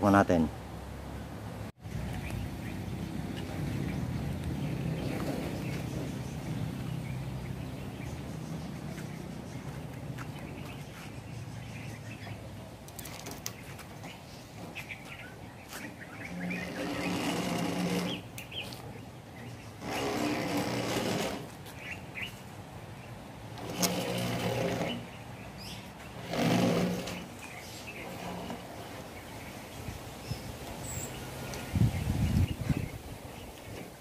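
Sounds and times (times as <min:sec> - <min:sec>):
metal cage scraping inside pipe: 0:16.3 - 0:18.3, 0:19.8 - 0:21.5, 0:23.6 - 0:25.1, 0:26.2 - 0:29.0.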